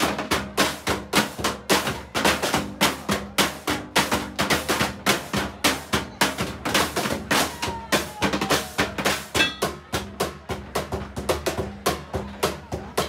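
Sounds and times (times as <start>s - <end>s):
drumsticks on plastic barrels: 9.3s - 9.9s
drumsticks on scrap metal: 9.4s - 9.7s.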